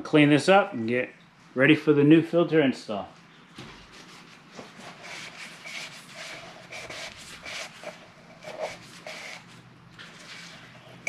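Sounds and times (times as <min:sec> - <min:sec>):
paper towel wiping strokes: 0:03.6 - 0:10.8.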